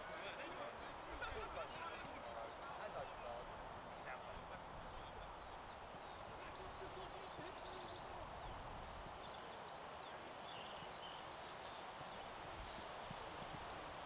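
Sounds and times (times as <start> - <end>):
faint distant voices: 0.0 - 14.0
outdoor noise: 0.0 - 14.0
bird chirping: 3.9 - 8.6, 9.2 - 12.9.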